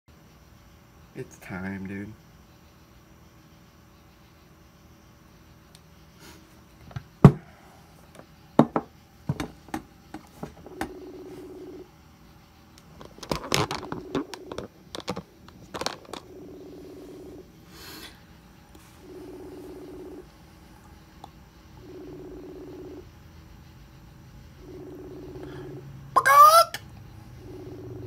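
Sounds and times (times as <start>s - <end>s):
phone handling taps and knocks: 8.6s - 11.0s
phone ringing tone: 10.4s - 11.9s, 13.2s - 17.4s, 19.0s - 20.3s, 21.8s - 23.1s, 24.6s - 26.6s, 27.3s - 28.0s.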